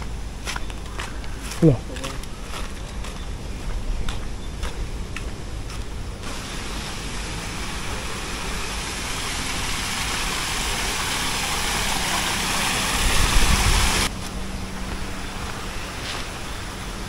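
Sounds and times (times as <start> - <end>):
water rushing over rocks: 6.2 - 14.1.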